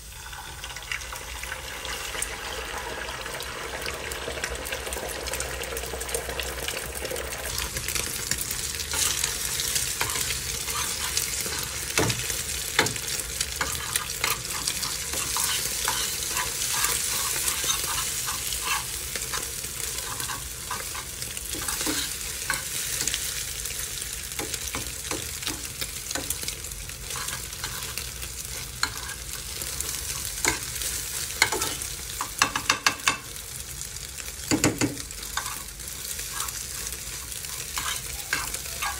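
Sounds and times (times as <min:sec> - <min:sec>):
eggs sizzling in a frying pan: 0:00.0 - 0:38.9
spatula scraping and tapping pan: 0:09.8 - 0:23.3, 0:24.4 - 0:33.3, 0:34.4 - 0:38.9.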